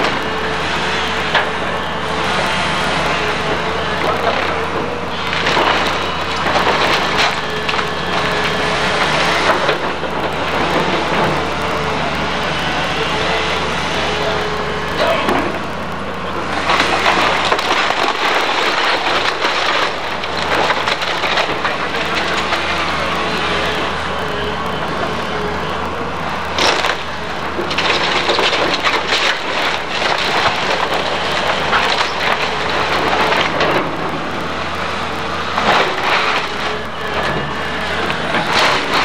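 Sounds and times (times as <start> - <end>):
diesel engine running: 0.0 - 39.0
timber splintering and cracking: 3.9 - 11.9, 16.6 - 39.0.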